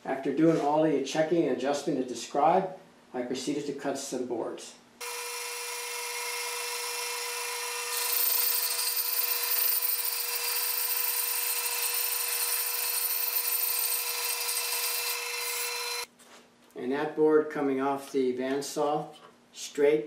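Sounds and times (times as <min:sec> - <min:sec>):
band saw cutting wood: 0:05.0 - 0:16.1.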